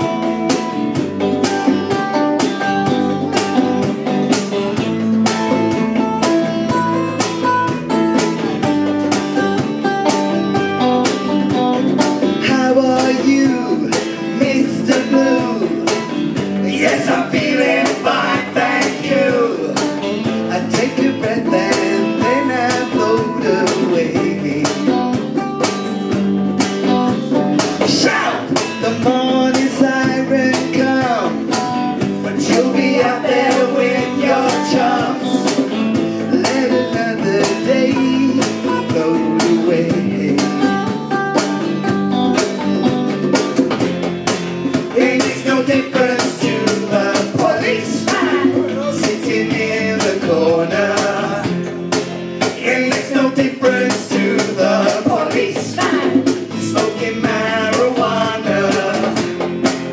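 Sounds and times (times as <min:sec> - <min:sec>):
electric guitars: 0:00.0 - 0:59.9
man singing: 0:12.2 - 0:25.3, 0:27.8 - 0:41.0, 0:44.9 - 0:51.7, 0:52.4 - 0:59.3
woman singing: 0:16.6 - 0:24.9, 0:32.2 - 0:40.8, 0:44.9 - 0:51.5, 0:52.4 - 0:59.2.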